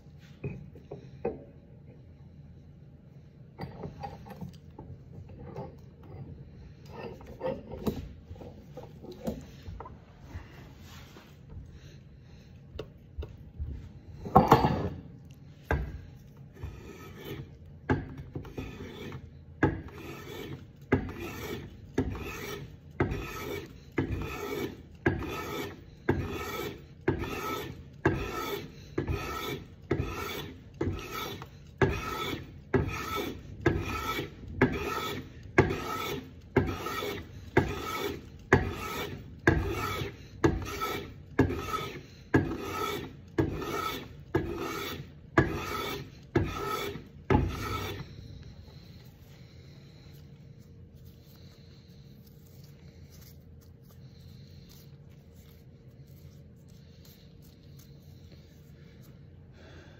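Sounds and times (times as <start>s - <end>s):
hand plane shaving wood: 16.6s - 17.6s, 18.4s - 48.9s.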